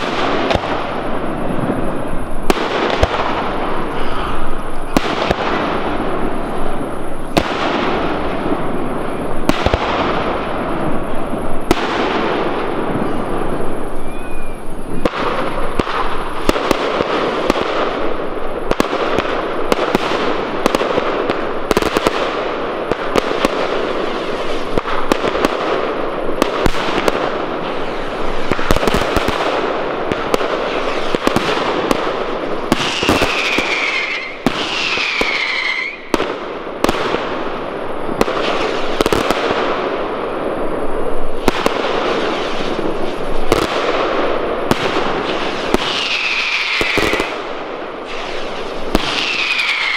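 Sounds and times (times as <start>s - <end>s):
falling firework whistles: 0.0s - 20.9s, 26.4s - 37.4s, 41.3s - 44.1s, 44.7s - 49.9s
fireworks bangs: 0.0s - 49.9s
fireworks crackling: 0.0s - 49.9s.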